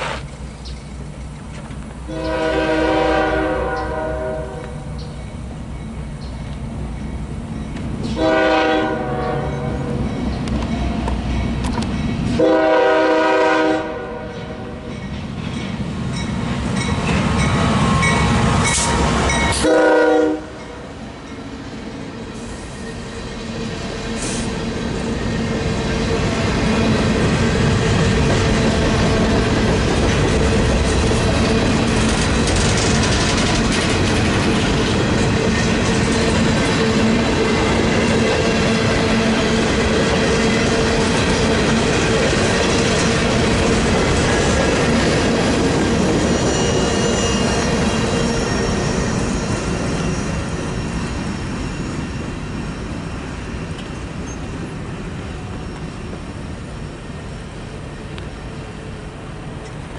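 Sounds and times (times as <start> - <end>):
train rumble and wheel clatter: 0.0 - 59.9
train horn blasts: 2.1 - 4.9, 8.0 - 10.0, 12.4 - 14.9, 19.3 - 20.9.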